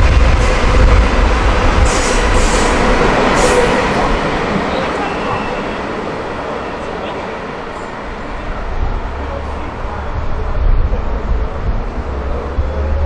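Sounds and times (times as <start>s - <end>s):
train wheels rumbling on track: 0.0s - 13.0s.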